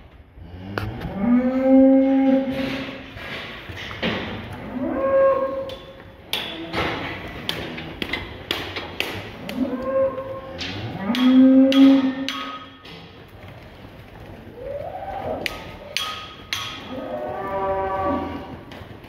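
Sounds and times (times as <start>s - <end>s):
young bulls mooing: 0.4s - 3.0s, 4.5s - 8.1s, 9.4s - 12.3s, 14.6s - 18.7s
sharp knocks and clatters: 2.5s - 4.6s, 5.7s - 9.6s, 10.5s - 14.5s, 15.4s - 17.6s.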